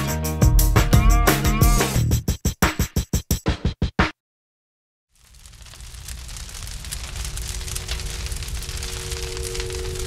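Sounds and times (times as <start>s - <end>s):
dense crackling noise: 5.1s - 10.0s.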